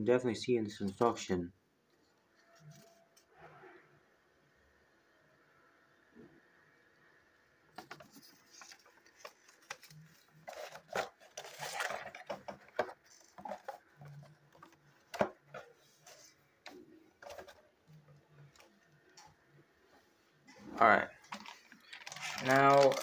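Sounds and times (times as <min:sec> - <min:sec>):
paper leaflet rustling: 0:07.8 - 0:17.6, 0:21.2 - 0:23.0.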